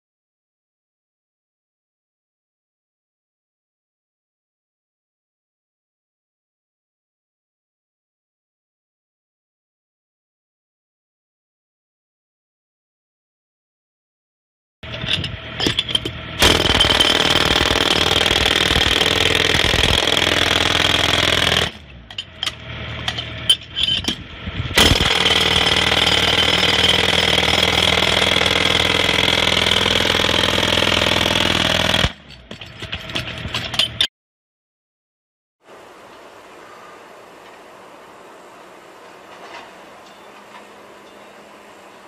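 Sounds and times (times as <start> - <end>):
jackhammer breaking concrete: 15.6 - 21.8, 24.8 - 32.9.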